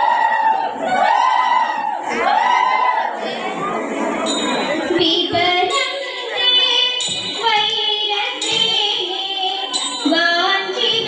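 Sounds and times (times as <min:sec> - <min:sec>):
women singing: 0:04.9 - 0:11.0.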